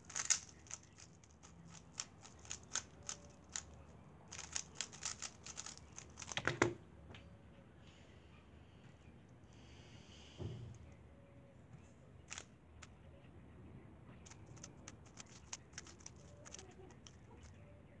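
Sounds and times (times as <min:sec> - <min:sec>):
plastic clicks of puzzle cube turning: 0:00.0 - 0:06.8, 0:12.3 - 0:12.9, 0:14.2 - 0:17.6
soft thump: 0:10.4 - 0:10.8.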